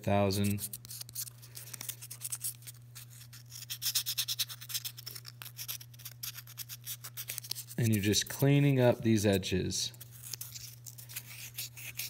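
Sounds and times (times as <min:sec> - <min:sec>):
sandpaper scratching metal ring: 0:10.2 - 0:12.0.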